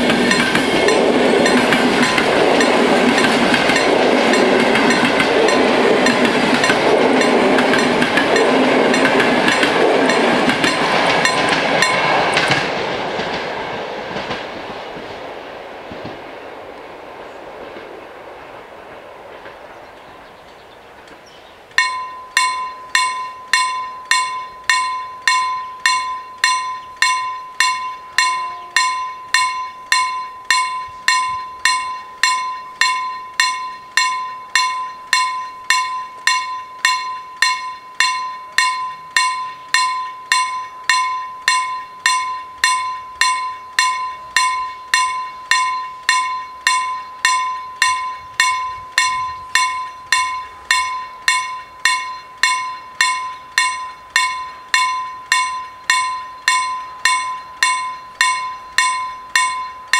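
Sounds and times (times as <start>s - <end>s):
level crossing bell ringing: 21.8s - 59.9s.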